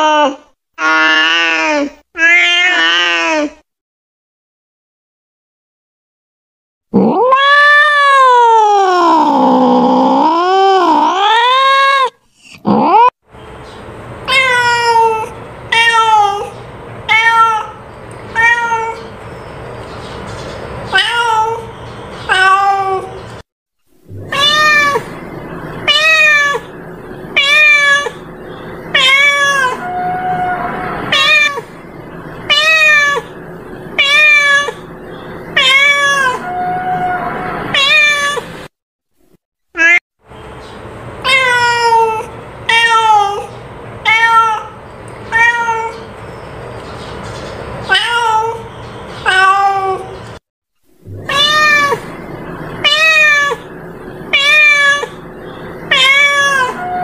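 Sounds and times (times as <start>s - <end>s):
cat meowing: 0.0s - 3.6s, 7.0s - 12.1s, 14.3s - 19.1s, 20.9s - 23.2s, 24.1s - 25.2s, 25.8s - 26.8s, 27.4s - 28.2s, 28.9s - 31.7s, 32.4s - 33.3s, 34.0s - 34.9s, 35.5s - 38.5s, 39.8s - 40.0s, 41.2s - 46.1s, 47.9s - 50.2s, 51.1s - 52.2s, 52.8s - 55.2s, 55.8s - 57.0s.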